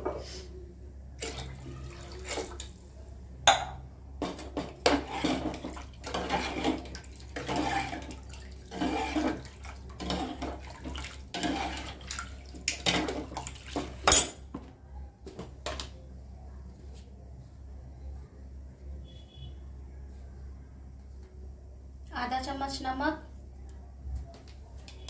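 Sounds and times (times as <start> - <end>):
broth sloshing and splashing: 4.9 - 14.2.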